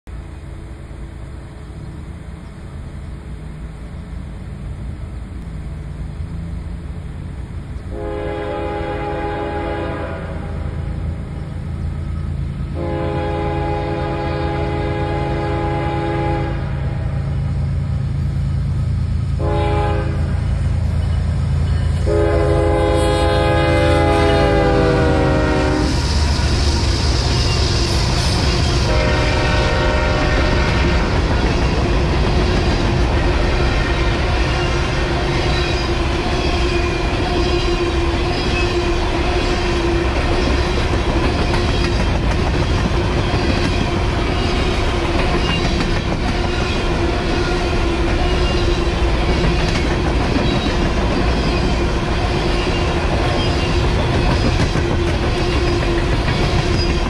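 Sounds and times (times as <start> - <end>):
train rumbling: 0.0 - 57.0
train horn: 7.9 - 11.2, 12.7 - 17.4, 19.4 - 20.7, 21.9 - 31.9, 46.3 - 49.8.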